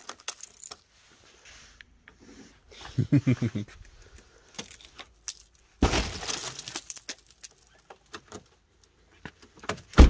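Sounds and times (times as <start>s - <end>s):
ice cracking and breaking: 4.6s - 7.8s.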